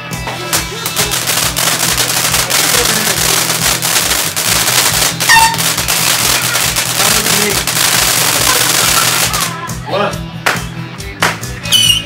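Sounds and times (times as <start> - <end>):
fireworks popping and crackling: 0.0 - 9.6
firework whistle: 1.3 - 9.5.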